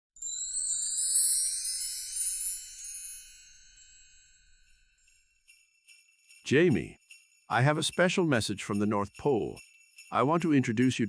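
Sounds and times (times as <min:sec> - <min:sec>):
shimmering chime rising: 0:00.2 - 0:06.0.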